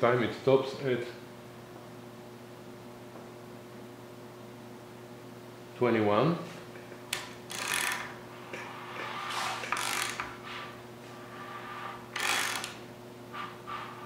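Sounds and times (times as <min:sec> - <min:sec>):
ratchet wrench clicking: 0:07.5 - 0:08.1, 0:09.7 - 0:10.3, 0:12.2 - 0:12.8.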